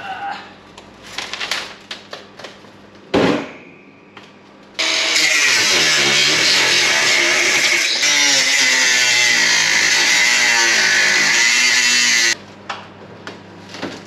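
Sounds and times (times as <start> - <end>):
angle grinder cutting steel: 4.8 - 12.4.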